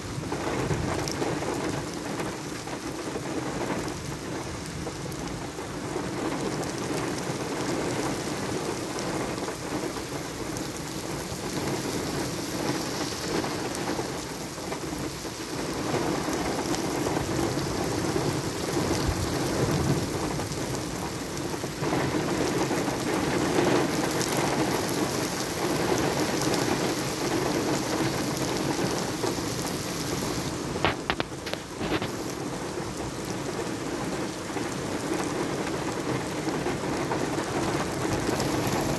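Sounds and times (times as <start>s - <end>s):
heavy rain on pavement: 0.0s - 38.9s.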